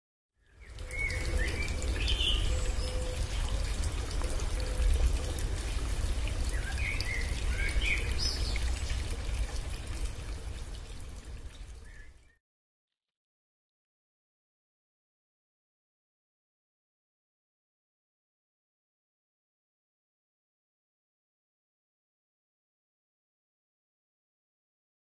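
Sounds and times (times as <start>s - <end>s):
birds chirping: 0.6s - 5.4s, 6.0s - 9.1s.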